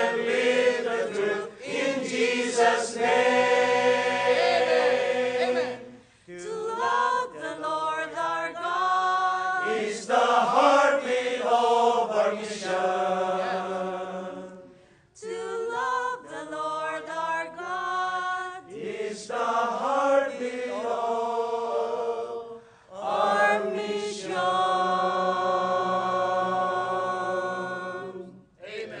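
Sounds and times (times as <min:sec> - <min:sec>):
mixed choir singing gospel: 0:00.0 - 0:29.0.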